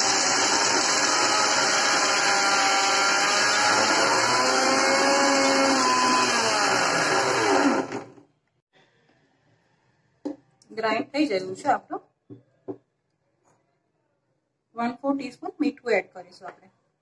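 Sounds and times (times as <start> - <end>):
mixer grinder grinding peanuts: 0.0 - 8.2.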